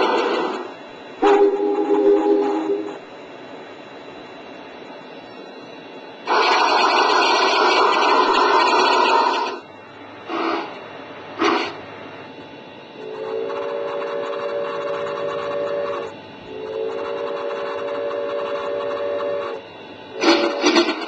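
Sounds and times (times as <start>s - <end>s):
steam whistle blasts: 1.2s - 3.0s
loud pulsing sound: 6.2s - 9.6s.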